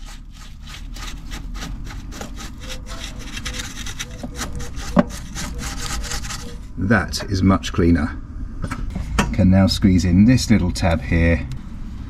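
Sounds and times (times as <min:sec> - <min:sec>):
brush scrubbing plastic: 0:00.0 - 0:06.7.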